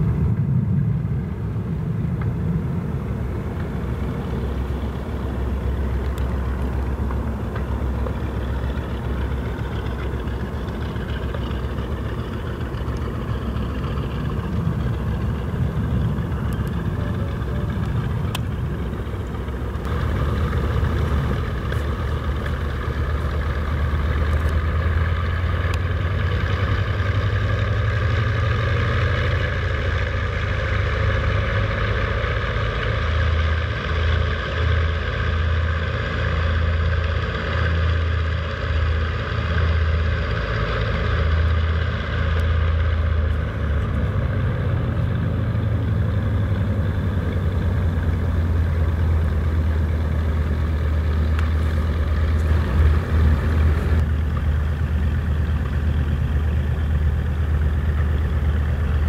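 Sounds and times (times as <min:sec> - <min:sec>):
aircraft radial engines droning: 0:00.0 - 0:59.0.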